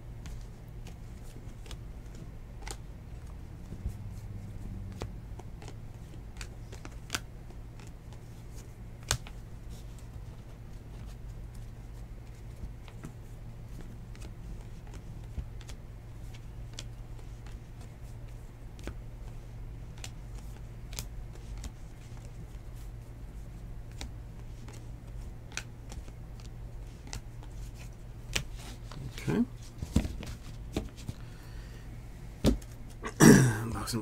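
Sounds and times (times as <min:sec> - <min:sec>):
steady low hum: 0:00.0 - 0:34.0
cards sliding and clicking: 0:23.9 - 0:31.2.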